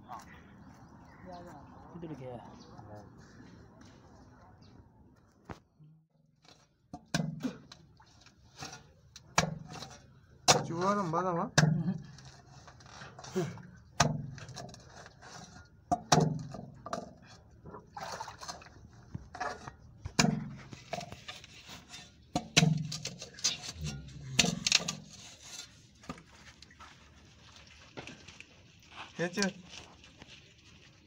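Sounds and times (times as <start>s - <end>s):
spade chopping into tree roots: 14.0s - 14.5s.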